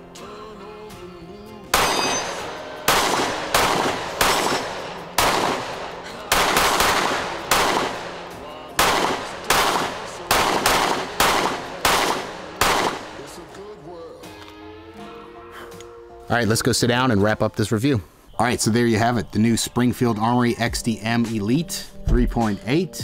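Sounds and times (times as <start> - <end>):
background music: 0.0 - 23.0
pistol shots with ringing echo: 1.7 - 13.5.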